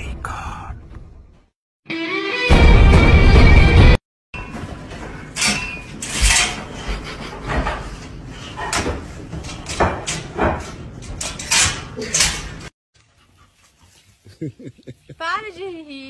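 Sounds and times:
wire crate door rattling: 0:08.7 - 0:12.7.

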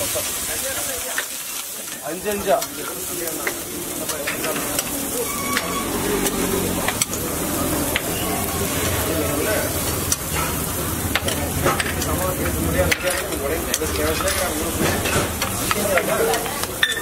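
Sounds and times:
egg sizzling on griddle: 0:00.0 - 0:17.0
metal tool scraping griddle: 0:04.0 - 0:07.3, 0:12.9 - 0:15.8.

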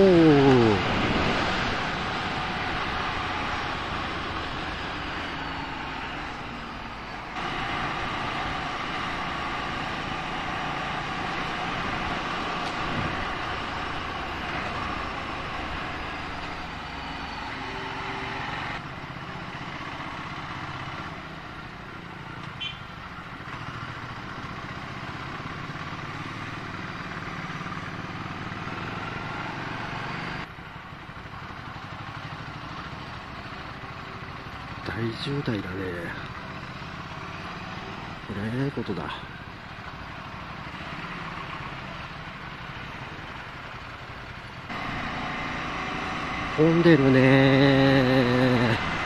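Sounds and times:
road and wind noise: 0:00.0 - 0:49.0
motorcycle engine running: 0:30.6 - 0:35.0.

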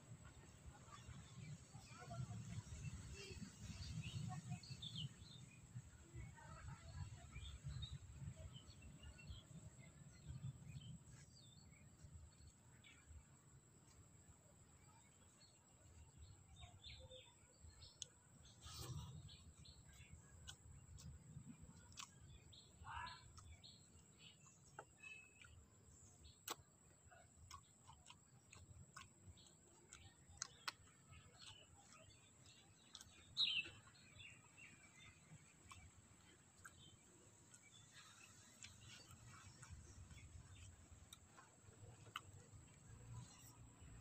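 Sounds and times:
bird chirps: 0:14.9 - 0:44.0
person eating rice by hand: 0:17.8 - 0:44.0.

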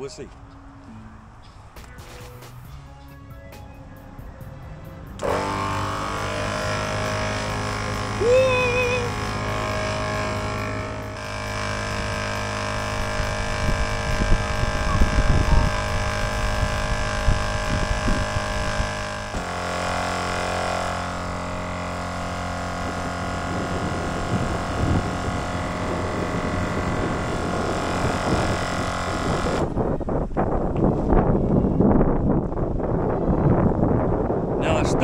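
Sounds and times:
air compressor running: 0:05.1 - 0:30.0.

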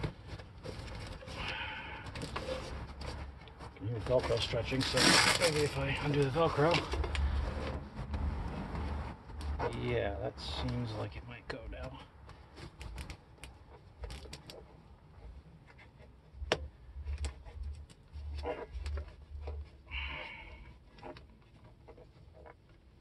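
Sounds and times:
fabric rustling: 0:02.4 - 0:09.7.

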